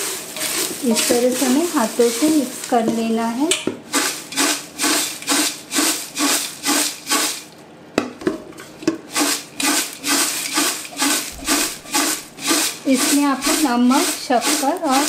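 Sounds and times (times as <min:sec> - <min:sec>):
dry snack tossed in metal pot: 0:00.0 - 0:07.5, 0:09.1 - 0:15.0.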